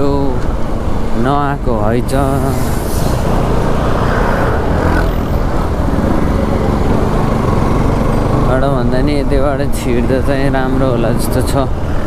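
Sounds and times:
road noise: 0.0s - 12.0s
rushing wind: 0.0s - 12.0s
motorcycle engine running: 3.4s - 11.2s.

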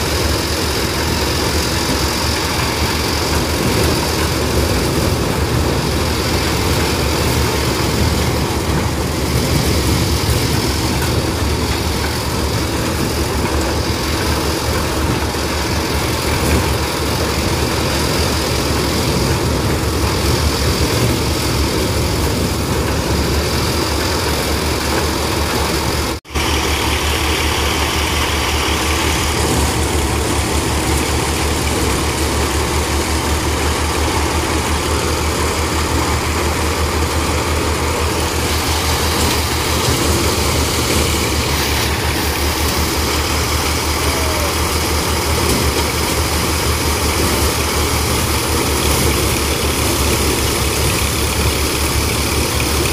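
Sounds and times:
maize sheller running: 0.0s - 52.9s
tractor engine hum: 0.0s - 52.9s.

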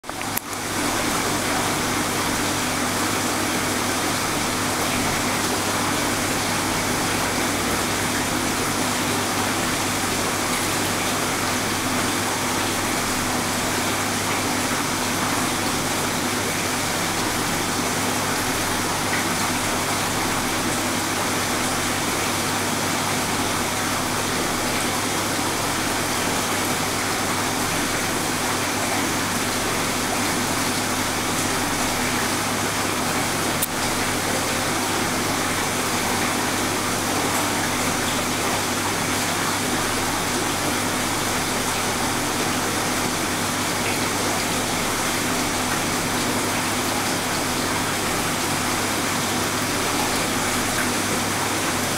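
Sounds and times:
aquarium pump hum: 0.0s - 51.9s
rush of circulating water: 0.0s - 51.9s.

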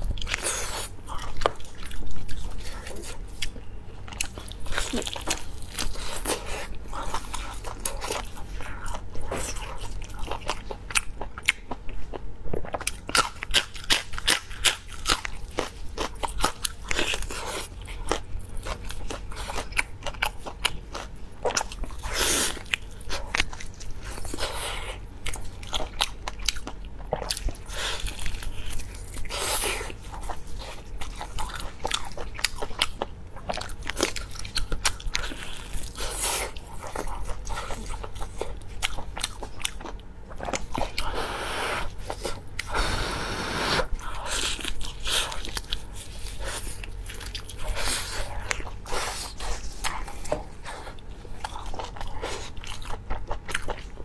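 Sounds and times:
close-miked chewing of meat: 0.0s - 54.0s.

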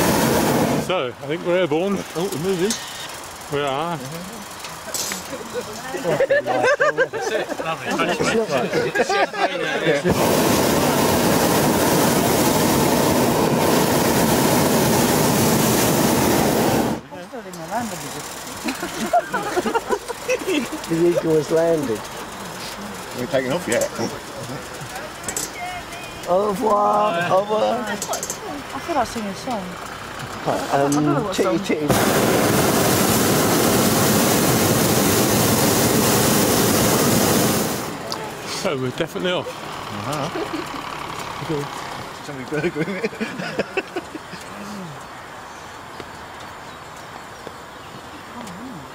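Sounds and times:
propane burner roaring: 0.0s - 6.6s, 9.6s - 25.5s, 26.2s - 44.0s.

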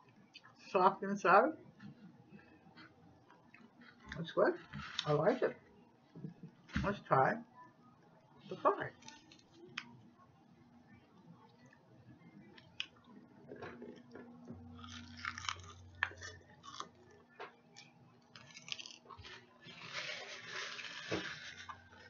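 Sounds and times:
chewing and crunching fried chicken: 8.9s - 10.1s, 11.2s - 22.0s.

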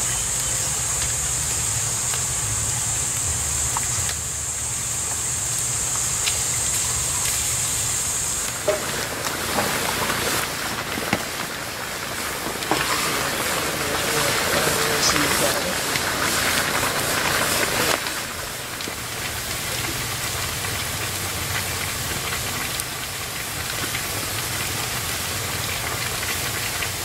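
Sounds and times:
brine boiling with high hiss: 0.0s - 27.0s.

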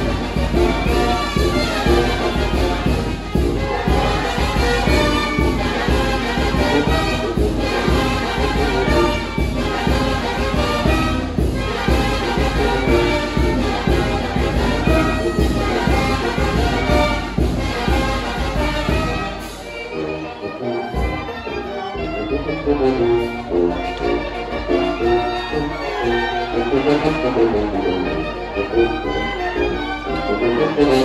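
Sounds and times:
steady drum beat: 0.0s - 19.7s
brass band playing dance music: 0.0s - 31.0s.

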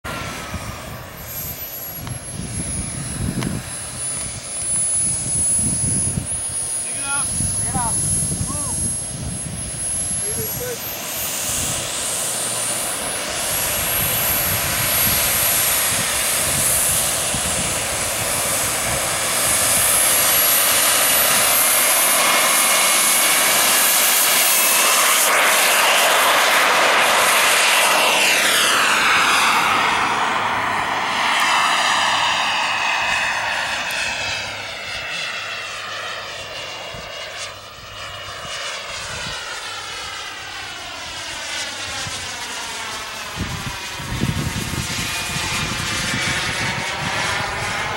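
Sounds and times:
model jet engine whine: 0.0s - 47.9s.

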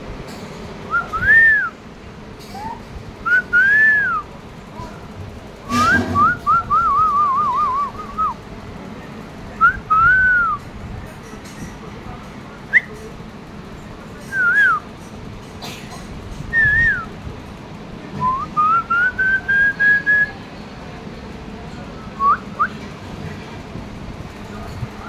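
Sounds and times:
person whistling: 0.9s - 1.7s, 2.6s - 4.2s, 5.7s - 8.3s, 16.6s - 17.1s, 18.2s - 20.3s.

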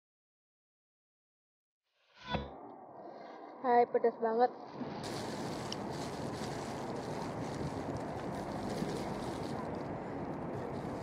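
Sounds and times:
wind noise on microphone: 4.8s - 11.0s.

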